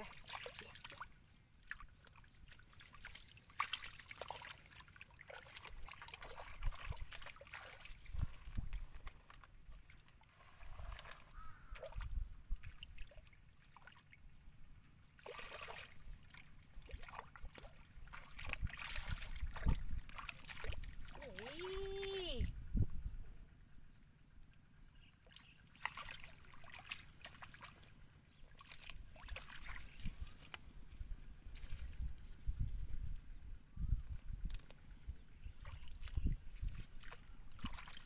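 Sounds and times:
hands squelching in wet mud: 0.0s - 14.1s, 15.2s - 22.4s, 25.2s - 30.7s, 35.6s - 38.0s
water splashing and sloshing: 0.0s - 22.5s, 25.2s - 32.9s, 35.3s - 38.0s.

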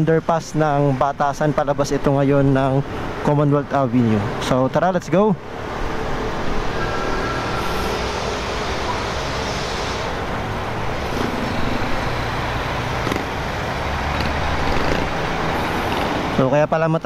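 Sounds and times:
road and traffic noise: 0.0s - 17.0s
motorcycle engine running: 11.1s - 16.1s.

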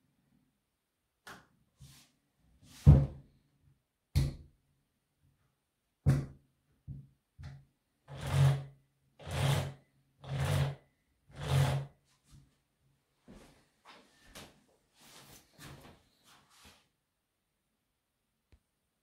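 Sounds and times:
chainsaw chain pulled along guide bar: 9.2s - 10.8s.

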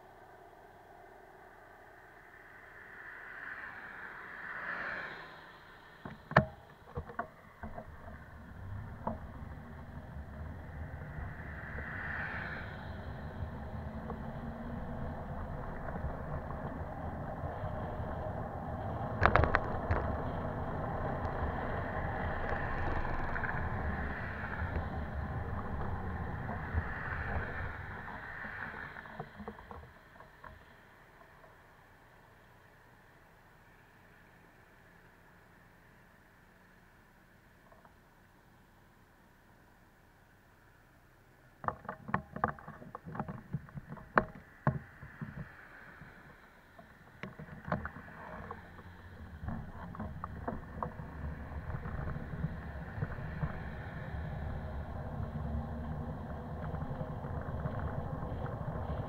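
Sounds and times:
cars passing: 0.0s - 31.5s, 44.4s - 59.0s
bicycle rumble and wind noise: 0.0s - 59.0s
bike knocks and rattles: 6.1s - 11.9s, 41.6s - 46.2s.

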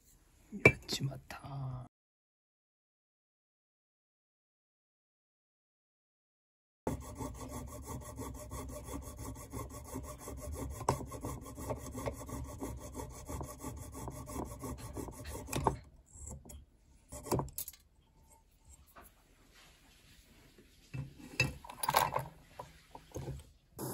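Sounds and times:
hand tool rasping on brass ring: 6.9s - 17.4s.

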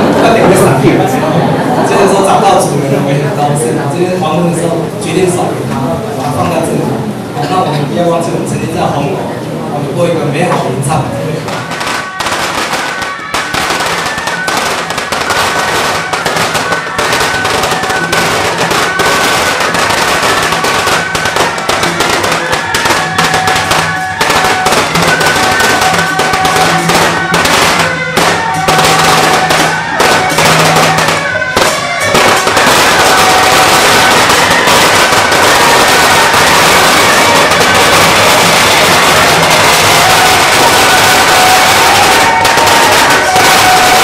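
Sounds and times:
firecrackers crackling: 0.0s - 7.6s, 10.4s - 44.0s
melody playing: 11.3s - 44.0s.

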